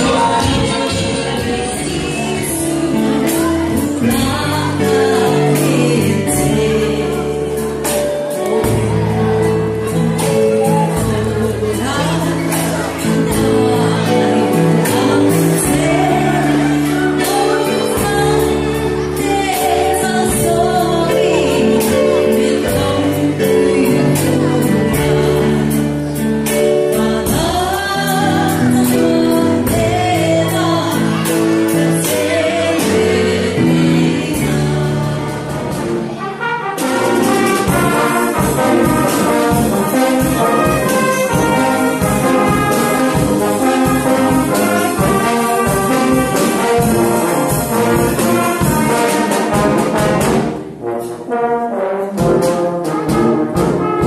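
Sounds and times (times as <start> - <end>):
person singing: 0.0 - 50.2
brass music over a beat: 35.2 - 54.0.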